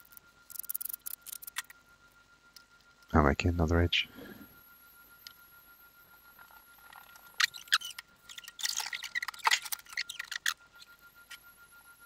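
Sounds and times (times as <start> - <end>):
sharp clicks and crackles: 0.0 - 1.8, 6.4 - 11.5
pen motor whining: 6.5 - 12.0.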